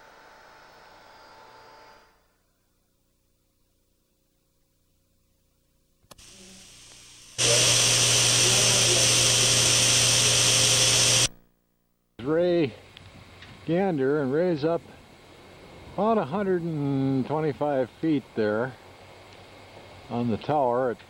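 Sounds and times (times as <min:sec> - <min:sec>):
faint hiss: 0:02.2 - 0:11.3, 0:12.2 - 0:21.0
mechanical whir with buzzing hum: 0:06.1 - 0:11.7.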